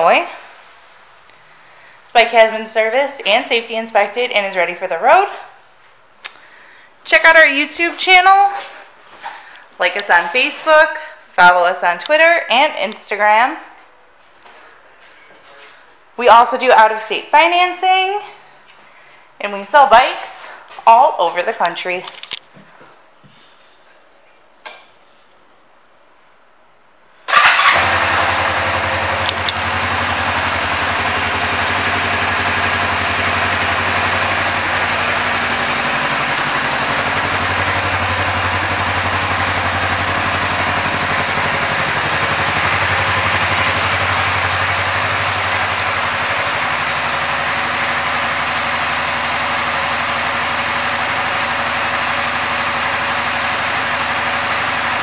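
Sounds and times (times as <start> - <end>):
motorcycle engine starting and idling: 27.3 - 55.0.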